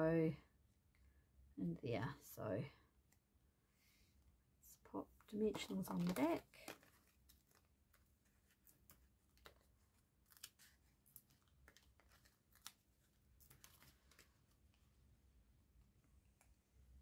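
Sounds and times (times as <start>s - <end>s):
faint clicks and rustles: 5.2s - 15.0s.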